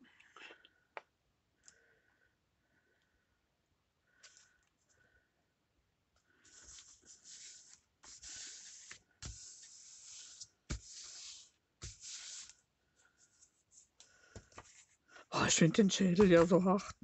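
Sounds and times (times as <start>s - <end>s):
paper rustling and sliding: 6.5s - 12.6s, 13.2s - 15.0s.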